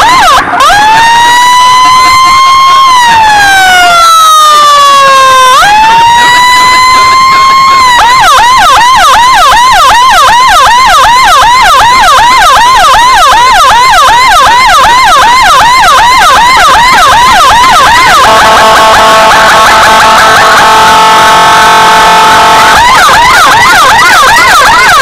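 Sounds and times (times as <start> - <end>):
emergency siren yelping: 0.0 - 25.0
steady multi-note horn tone: 6.4 - 25.0.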